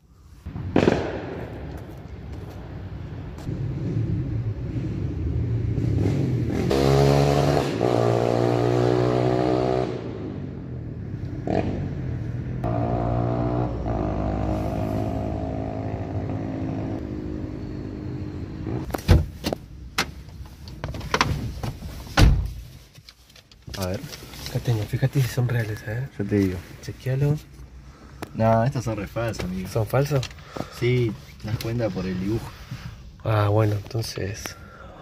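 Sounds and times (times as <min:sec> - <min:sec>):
vehicle engines droning: 0:01.7 - 0:19.0.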